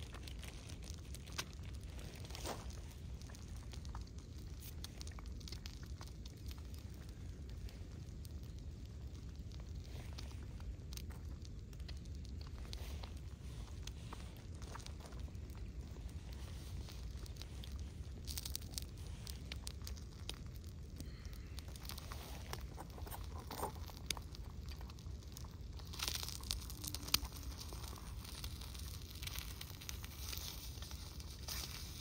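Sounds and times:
eggs crackling in a small pan: 0:00.0 - 0:32.0
wind rumbling on microphone: 0:00.0 - 0:32.0.

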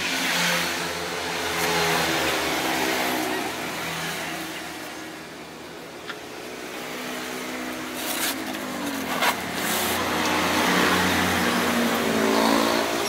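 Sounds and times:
cardboard rustling and scraping: 0:07.8 - 0:10.4.

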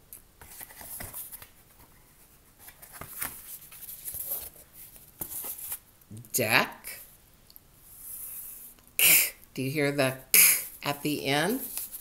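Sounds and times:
paper card rustling and flapping: 0:00.4 - 0:01.9, 0:02.6 - 0:05.8.

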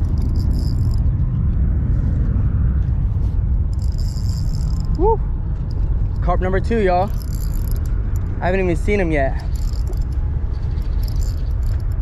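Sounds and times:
fishing reel drag buzzing: 0:00.0 - 0:01.0, 0:03.7 - 0:05.0, 0:07.0 - 0:08.3, 0:09.4 - 0:12.0
wind buffeting the microphone: 0:00.0 - 0:12.0.

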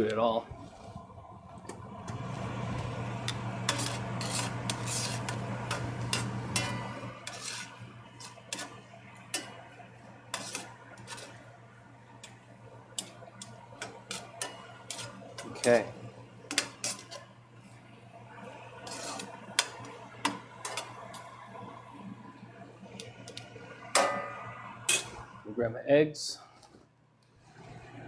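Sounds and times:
steady low hum: 0:00.0 - 0:26.6
utensil scraping frying pan: 0:02.1 - 0:17.4, 0:18.5 - 0:21.4, 0:23.2 - 0:25.3.

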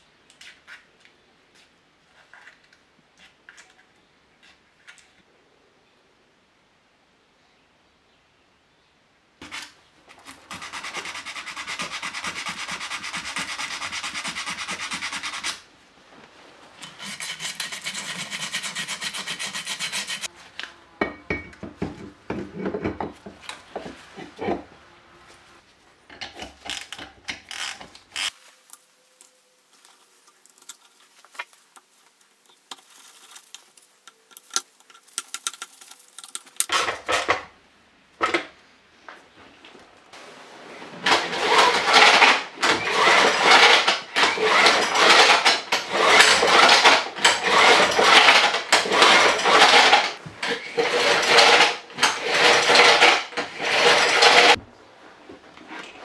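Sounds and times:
recoil starter cranking engine: 0:41.1 - 0:54.6
tools and engine parts clinking: 0:41.1 - 0:54.6.

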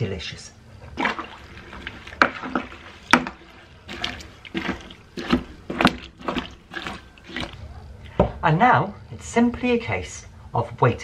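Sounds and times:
liquid sloshing in plastic bucket: 0:00.8 - 0:08.3
spoon knocking and swishing: 0:01.0 - 0:07.6.

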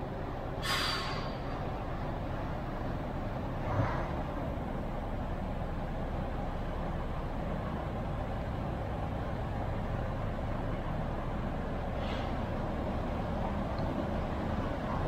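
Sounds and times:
bus diesel engine running: 0:00.0 - 0:15.0
short hiss: 0:00.6 - 0:01.4.

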